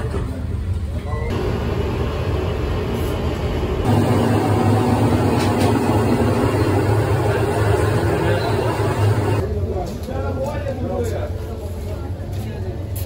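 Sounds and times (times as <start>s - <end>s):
gas stove burners rumbling: 1.3s - 9.4s.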